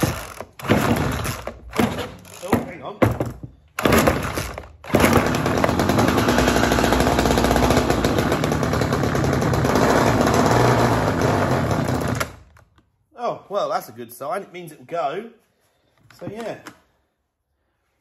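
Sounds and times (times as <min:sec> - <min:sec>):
chainsaw engine running: 0:04.0 - 0:12.3.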